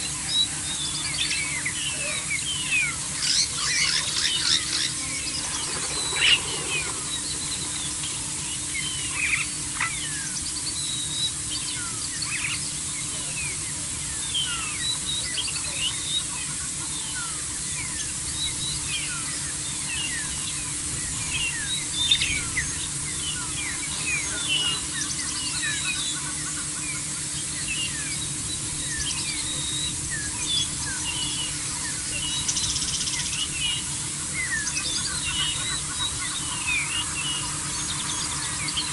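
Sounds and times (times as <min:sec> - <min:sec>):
faint low hum: 0:00.0 - 0:38.9
small birds chirping: 0:00.0 - 0:38.9
steady hiss: 0:00.0 - 0:38.9.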